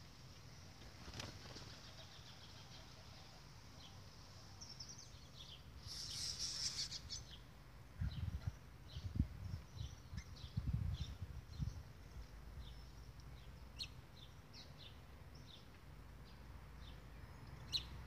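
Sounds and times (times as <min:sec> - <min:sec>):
small birds chirping: 0:00.0 - 0:18.0
bird wingbeats fluttering: 0:00.7 - 0:02.2.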